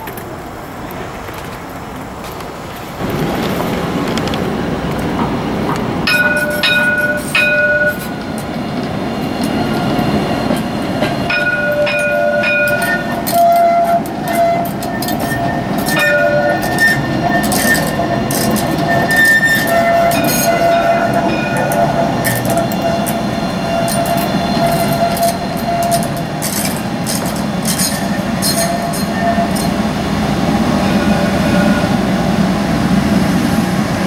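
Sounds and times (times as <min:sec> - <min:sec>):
tram wheels rumbling: 0:00.0 - 0:34.0
high-pitched wheel squeals: 0:09.3 - 0:29.8.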